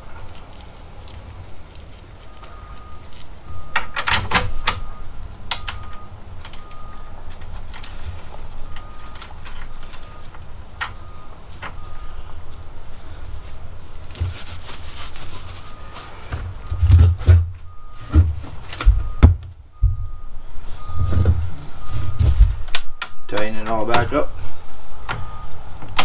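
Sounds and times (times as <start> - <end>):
metal tools clinking: 0.0 - 4.9.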